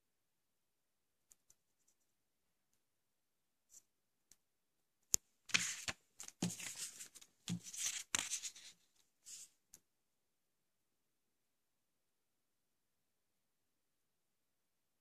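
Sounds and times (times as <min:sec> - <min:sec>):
paper rustling and sliding: 0:05.5 - 0:09.5.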